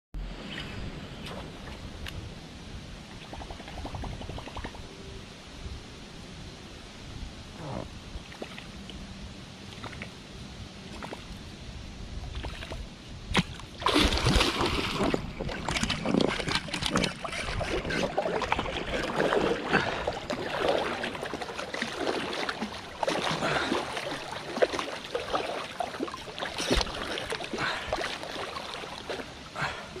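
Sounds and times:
water splashing and sloshing: 0.2s - 2.3s, 7.8s - 10.2s, 10.8s - 11.5s, 12.1s - 30.0s.

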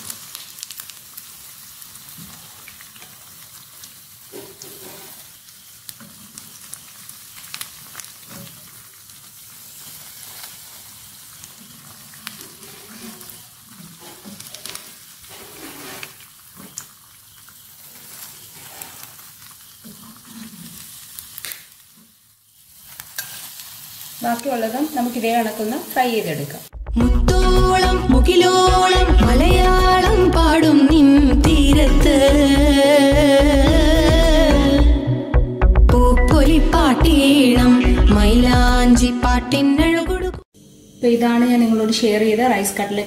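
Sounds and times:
food sizzling in oil: 0.0s - 26.8s.

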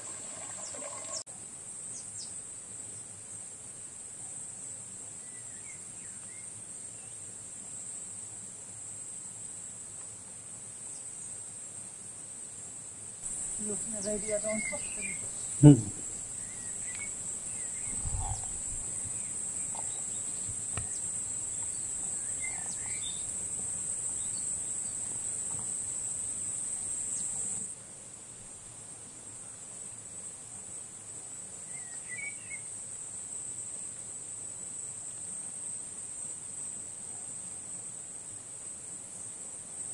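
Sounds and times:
insects buzzing in grass: 0.0s - 39.9s
faint bird chirps: 13.3s - 23.4s, 31.7s - 32.7s.

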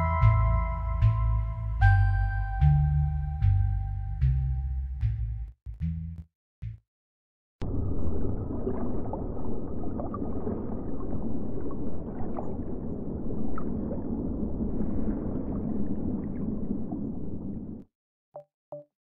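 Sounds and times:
muffled underwater rush: 7.6s - 17.9s.

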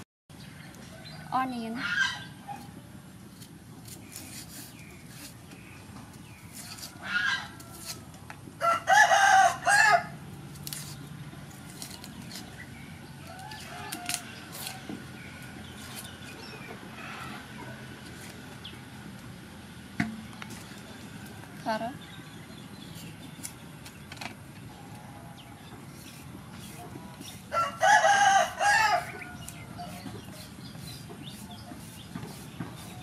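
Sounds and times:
onion skin being peeled: 3.3s - 5.6s, 6.4s - 8.2s, 10.4s - 14.9s
rooster crowing: 8.6s - 10.1s, 27.5s - 30.0s.

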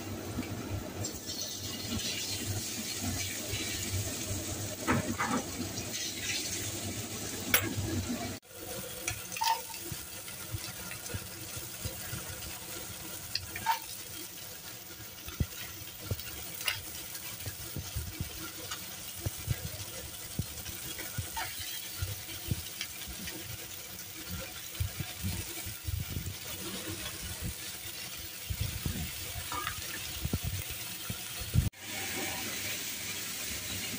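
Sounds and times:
food sizzling in a wok: 0.0s - 33.9s
spatula scraping a pan: 9.3s - 9.9s, 13.3s - 14.2s, 20.8s - 22.5s.

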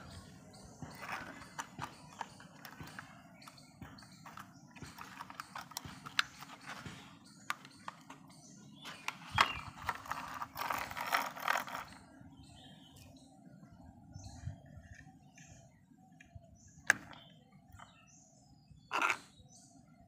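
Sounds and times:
plastic toy parts clicking: 4.2s - 6.8s, 9.0s - 12.0s
scraping rattle: 8.9s - 12.1s.

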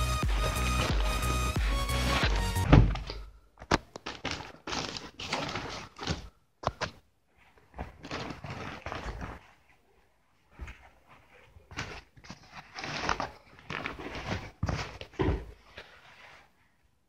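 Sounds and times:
cloth and packaging rustling: 0.0s - 17.0s
thud: 2.2s - 3.2s.

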